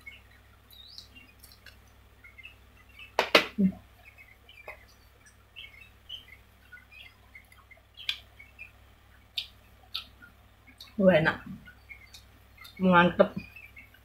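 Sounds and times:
faint bird chirps: 0.0 - 14.0
mouth eating clicks: 0.8 - 1.9, 7.5 - 8.3.

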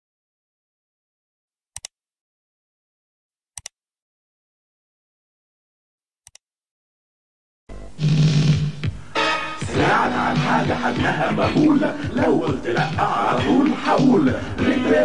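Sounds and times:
music: 7.7 - 15.0.

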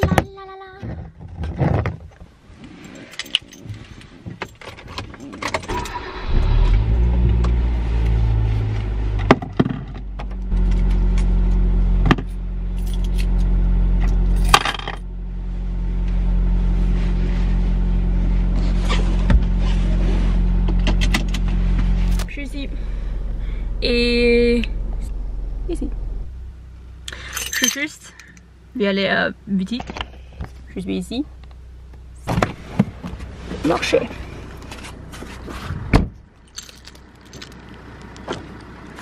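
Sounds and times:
car engine starting and idling: 2.3 - 39.0
car keys jangling: 2.7 - 6.3, 12.2 - 13.5, 14.1 - 15.0, 22.0 - 22.3, 27.1 - 28.4, 36.4 - 38.3.

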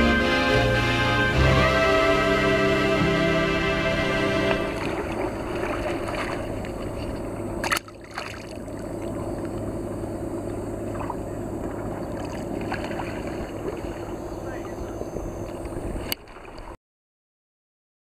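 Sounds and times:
steady low hum: 0.0 - 16.2
water lapping against concrete: 4.7 - 16.8.

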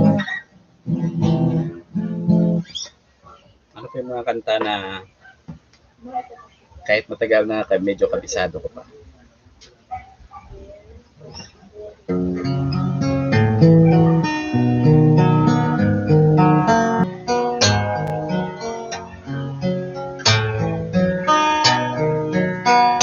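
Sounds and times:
acoustic guitar picking and strumming: 0.0 - 9.0, 9.6 - 23.0.

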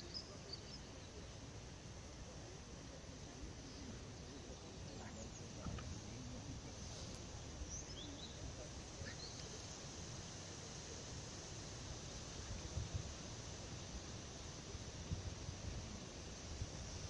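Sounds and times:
faint bird chirps: 0.0 - 1.5, 3.4 - 9.8
wind on microphone: 12.1 - 17.0.

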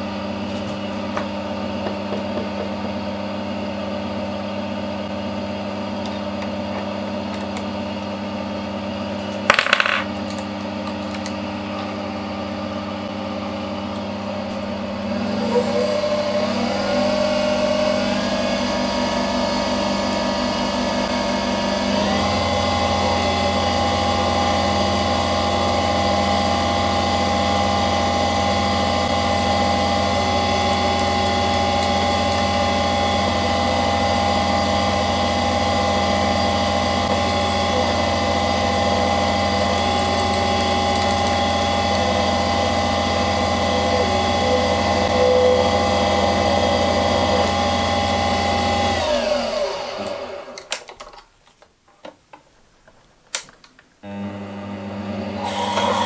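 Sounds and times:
lathe motor whine: 10.8 - 50.9, 54.0 - 56.0
drill cutting spinning work: 15.0 - 50.7, 55.1 - 56.0.

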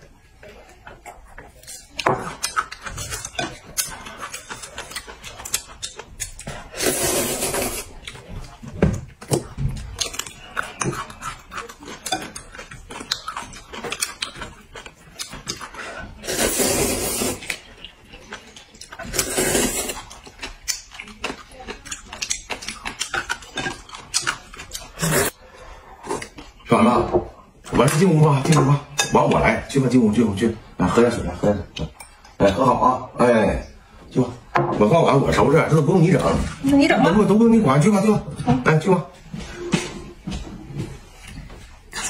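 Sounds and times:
loud noodle slurps: 6.7 - 8.0, 16.2 - 17.6, 19.0 - 20.0.

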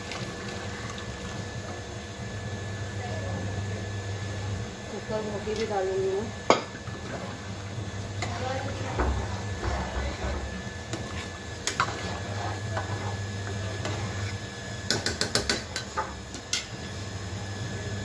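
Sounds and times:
steady low hum: 0.1 - 18.0.

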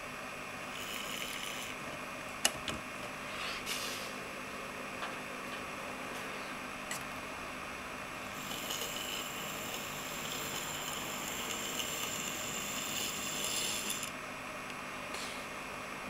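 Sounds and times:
tiny electric motor whine: 0.7 - 1.8, 8.3 - 14.2.

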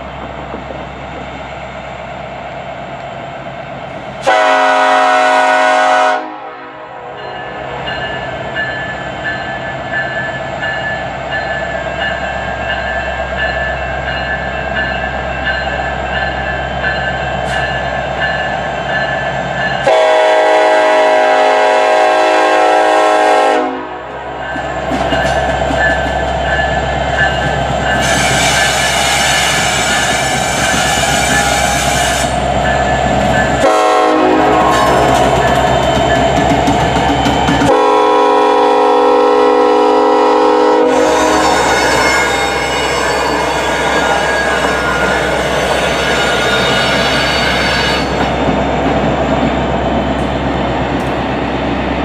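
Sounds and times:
locomotive horn blasts: 4.2 - 7.2, 19.8 - 24.1, 33.6 - 35.4, 37.7 - 45.6.

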